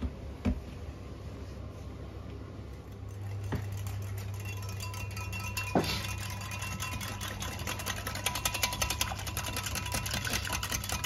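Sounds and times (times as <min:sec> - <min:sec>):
low steady hum: 0:00.0 - 0:11.0
whisk knocking against glass jug: 0:03.1 - 0:11.0.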